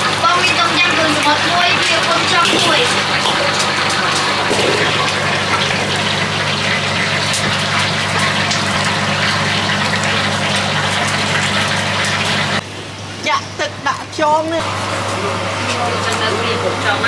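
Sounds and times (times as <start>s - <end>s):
wok station rushing noise: 0.0s - 12.6s.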